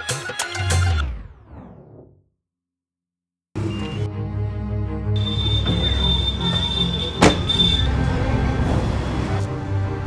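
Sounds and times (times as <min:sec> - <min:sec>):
background music: 0:03.6 - 0:10.0.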